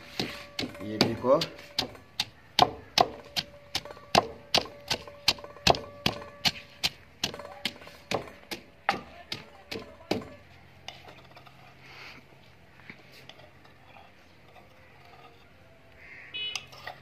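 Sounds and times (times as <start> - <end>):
wooden pestle pounding in mortar: 0.1 - 10.4.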